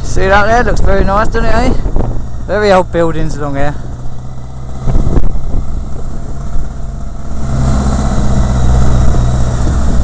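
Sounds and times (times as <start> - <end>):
rushing air: 1.6 - 2.7, 3.6 - 10.0
motorcycle engine running: 1.6 - 10.0.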